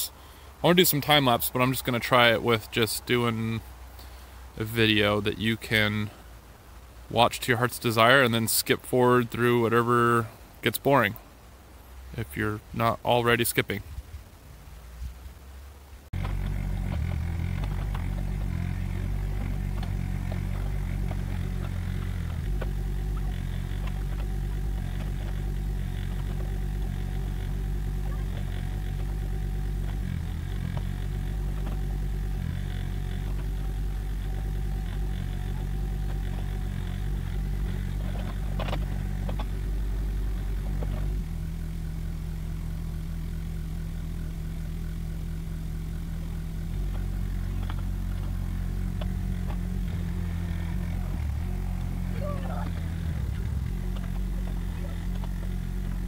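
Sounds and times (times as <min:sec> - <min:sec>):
excavator diesel engine running: 0:16.2 - 0:56.0.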